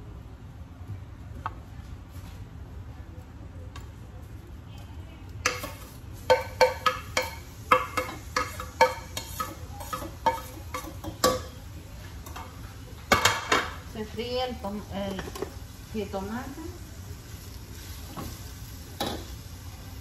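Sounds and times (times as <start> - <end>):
tomatoes sizzling in oil: 5.4 - 20.0.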